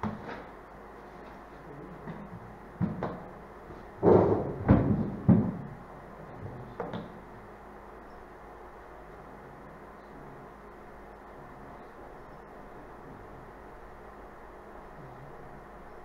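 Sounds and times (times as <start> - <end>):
knocks and thumps: 2.0 - 5.7.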